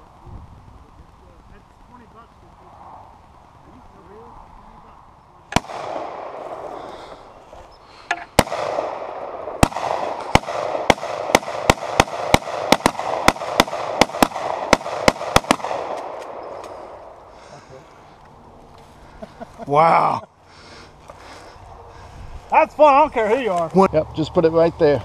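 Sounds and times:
rifle shots with echo: 0:05.5 - 0:06.9, 0:08.3 - 0:17.2.

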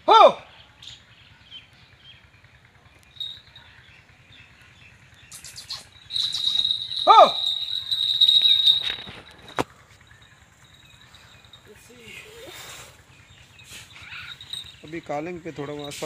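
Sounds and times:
bells jingling: 0:02.9 - 0:04.6, 0:05.5 - 0:16.0
rising-and-falling bird call: 0:05.3 - 0:09.2
wings flapping: 0:05.4 - 0:09.7.

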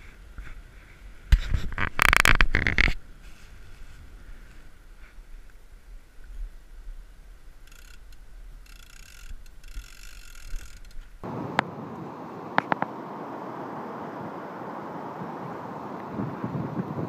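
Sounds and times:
fishing reel ratcheting: 0:07.6 - 0:11.0
wind on microphone: 0:14.0 - 0:17.0.

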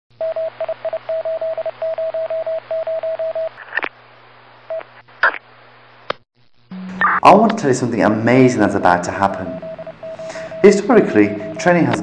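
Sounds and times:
static crackles: 0:03.5 - 0:12.0
radio static hiss: 0:03.6 - 0:09.6
low hum: 0:05.9 - 0:11.6
morse code beeps: 0:06.7 - 0:07.2, 0:09.1 - 0:12.0.

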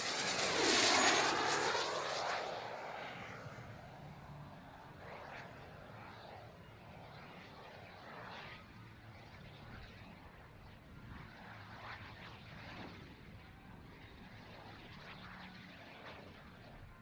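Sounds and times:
turbine glider rushing overhead: 0:00.0 - 0:17.0.

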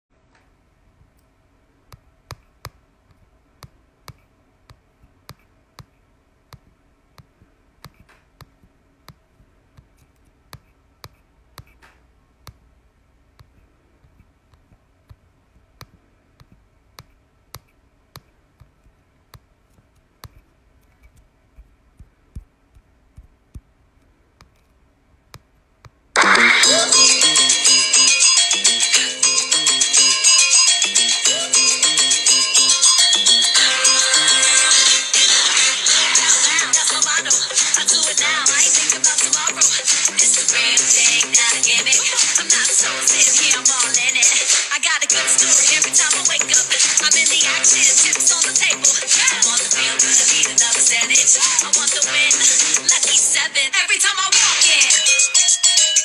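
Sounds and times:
faint steady hum: 0:00.1 - 0:55.5
loud music: 0:26.2 - 0:53.3.

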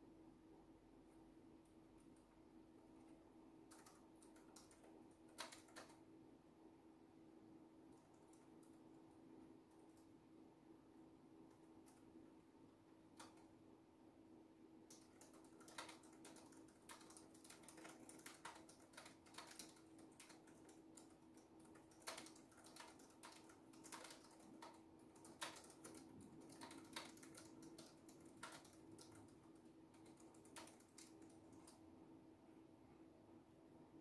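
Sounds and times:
faint steady hum: 0:00.0 - 0:34.0
laptop keyboard typing: 0:03.0 - 0:06.1, 0:07.9 - 0:10.2, 0:11.4 - 0:13.6, 0:14.8 - 0:31.8.

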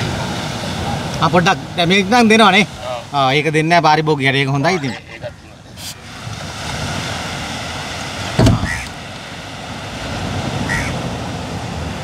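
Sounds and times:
outdoor background noise: 0:00.0 - 0:12.0
sharp knock: 0:08.4 - 0:08.8.

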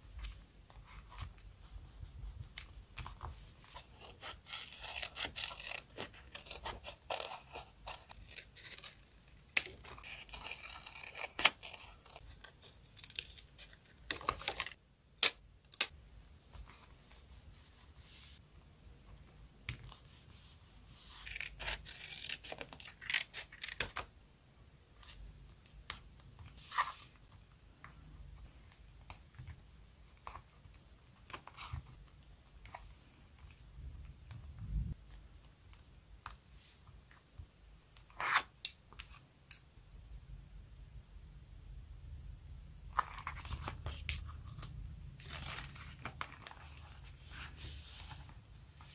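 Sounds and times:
sticker sheet rustling and crinkling: 0:42.9 - 0:48.9.

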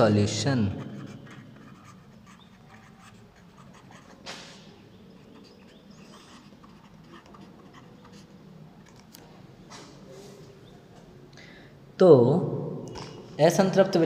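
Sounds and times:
marker pen scratching on paper: 0:00.6 - 0:09.1.

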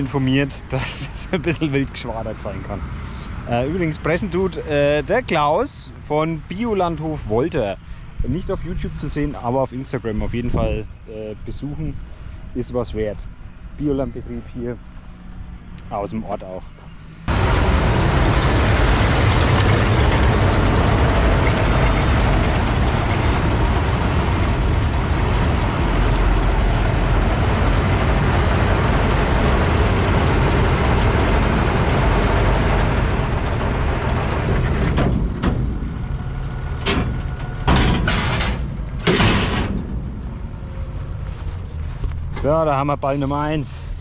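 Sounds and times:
baler and tractor running: 0:00.0 - 0:44.0
baler tailgate clanks: 0:34.4 - 0:41.0.

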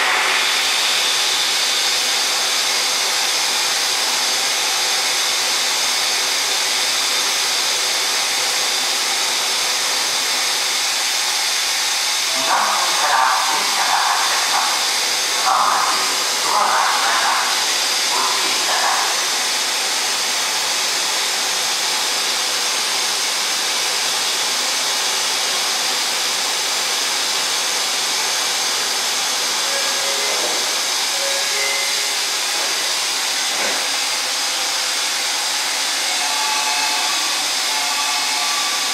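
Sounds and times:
air blower rushing: 0:00.0 - 0:04.0, 0:10.5 - 0:22.1, 0:27.8 - 0:38.9
person speaking: 0:12.3 - 0:19.4.

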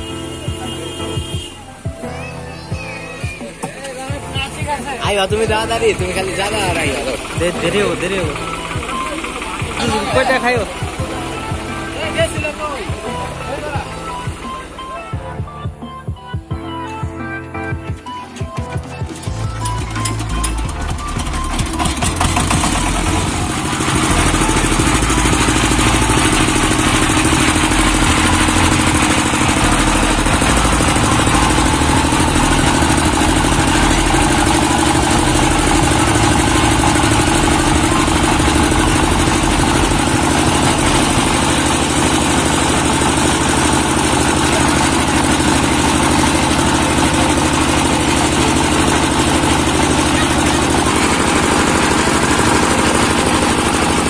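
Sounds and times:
diesel engine running: 0:00.0 - 0:16.2, 0:18.5 - 0:54.0.

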